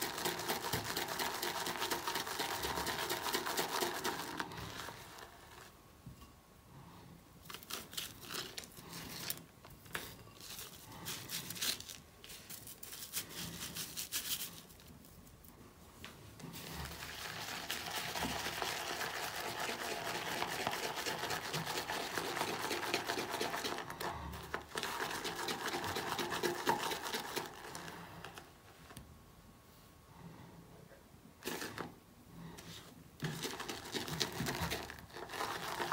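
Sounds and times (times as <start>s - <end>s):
brush whipping shaving lather: 17.5s - 23.8s.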